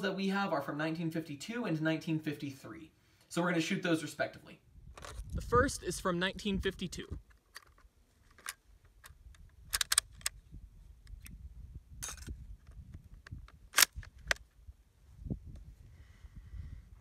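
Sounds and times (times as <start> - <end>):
rifle bolt clicks and clacks: 5.0 - 5.2, 7.2 - 10.4, 12.0 - 14.4.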